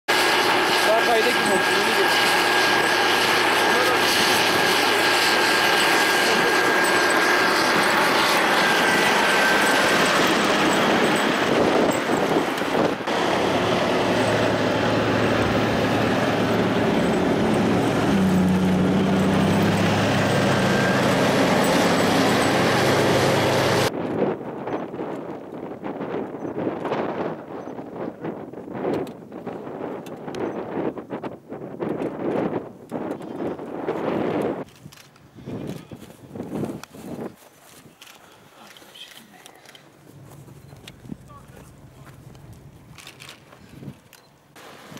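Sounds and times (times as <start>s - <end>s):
diesel engine running under load: 0.1s - 23.9s, 39.5s - 44.9s.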